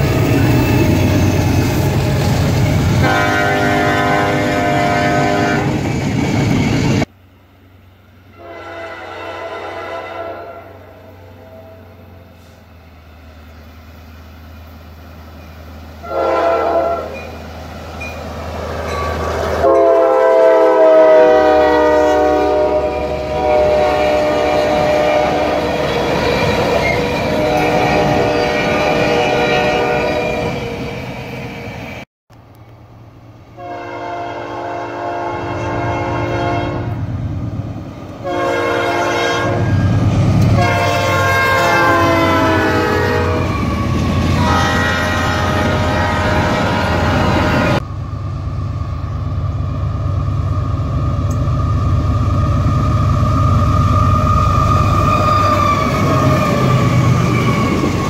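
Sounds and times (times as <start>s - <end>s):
train rumble: 0.0s - 58.0s
locomotive horn blasts: 3.0s - 5.8s, 8.3s - 12.6s, 16.0s - 17.4s, 19.6s - 25.8s, 27.0s - 30.6s, 33.6s - 37.1s, 38.2s - 43.6s, 44.3s - 47.8s.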